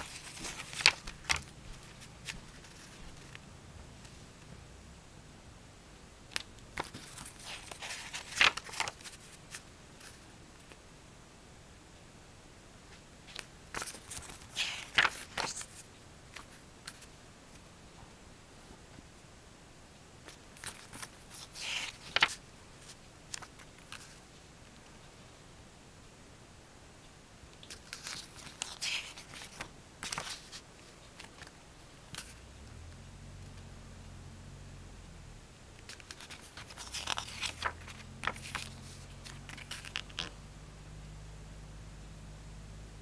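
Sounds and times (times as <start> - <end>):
light paper clicks: 0.0 - 3.4, 6.3 - 10.8, 20.3 - 22.4, 27.6 - 30.6, 35.8 - 40.3
paper page rustle and snap: 0.0 - 3.4, 6.3 - 10.8, 13.3 - 17.1, 20.3 - 24.2, 27.6 - 32.4, 35.8 - 40.3
steady low hum: 0.0 - 21.4, 30.6 - 43.0.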